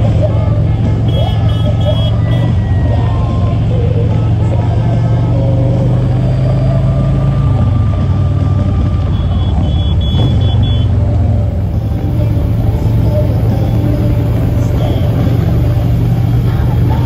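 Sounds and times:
motorcycle engine running: 0.0s - 17.0s
short high-pitched beeps: 9.1s - 10.9s.

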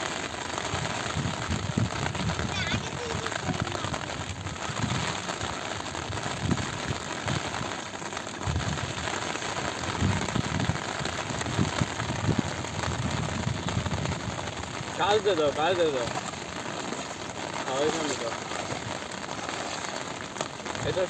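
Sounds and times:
rain falling on water: 0.0s - 21.0s.

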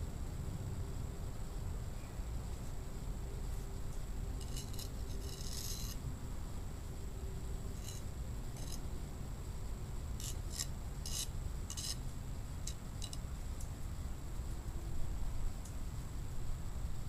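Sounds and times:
hand tool scraping hard soil: 4.4s - 6.0s, 10.2s - 12.0s.

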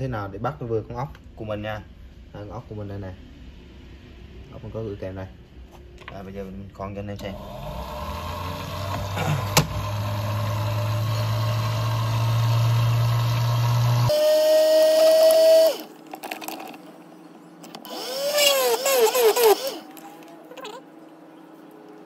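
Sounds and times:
drill press motor hum: 7.2s - 16.8s, 17.6s - 20.2s
drill whine: 7.3s - 15.9s, 17.8s - 19.9s
short squeaks: 17.8s - 20.8s.

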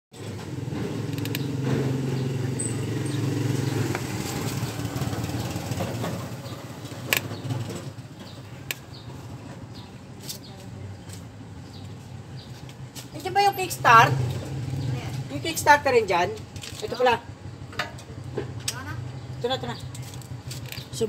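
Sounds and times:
motorcycle engine running: 0.2s - 21.0s
sharp clicks: 1.1s - 1.5s.

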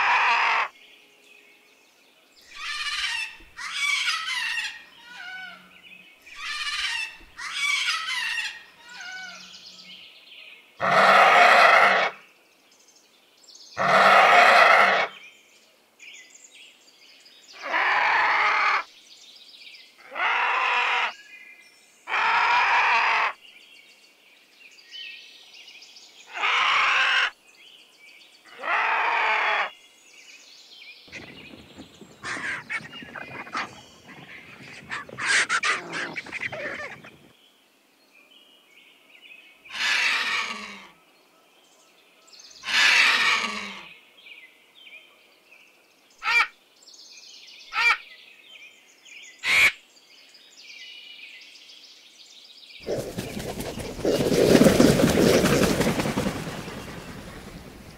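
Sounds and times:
vulture hoarse calls: 10.8s - 12.2s, 31.1s - 37.2s, 52.8s - 56.2s.

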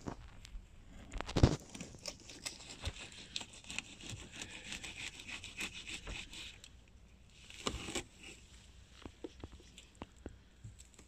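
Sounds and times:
knife sawing through fish: 2.2s - 6.7s.

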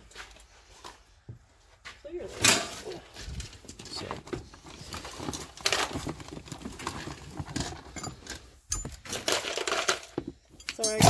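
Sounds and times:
metal buckles jingling: 7.4s - 11.0s.

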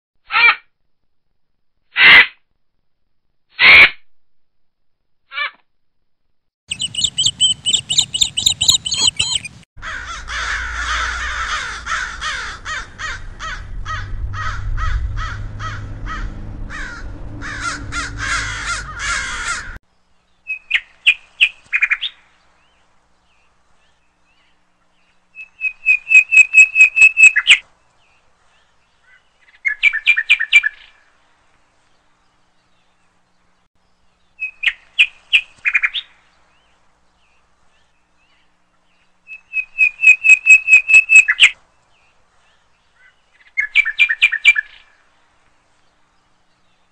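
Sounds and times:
crow distress caws: 9.8s - 19.8s.

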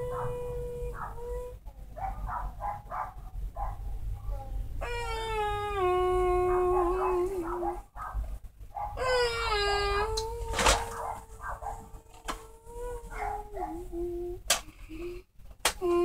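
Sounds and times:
dog howling: 0.0s - 8.2s, 8.8s - 14.4s
dog yelping: 0.0s - 14.0s.

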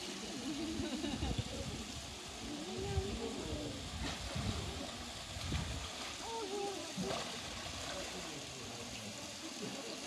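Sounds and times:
onlookers' voices: 0.0s - 10.0s
water sloshing and splashing: 3.9s - 8.6s.

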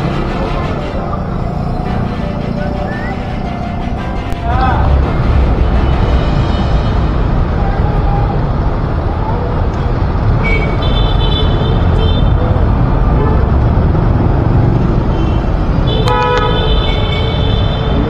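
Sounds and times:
rumble of vehicles: 0.0s - 18.0s
car horn: 10.4s - 12.4s, 15.1s - 18.0s.

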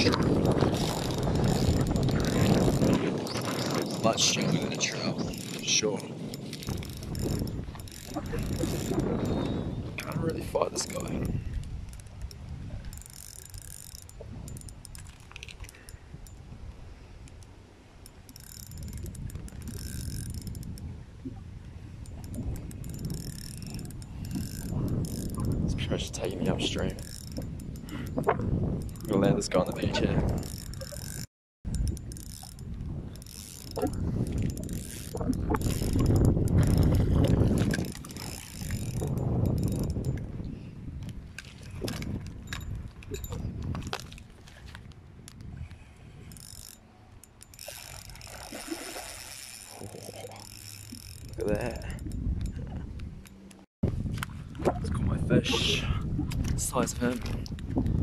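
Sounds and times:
fishing reel drag clicking: 0.0s - 3.9s, 4.8s - 16.5s, 17.2s - 20.9s, 21.9s - 40.3s, 45.3s - 52.6s
wind rumbling on microphone: 0.0s - 58.0s.

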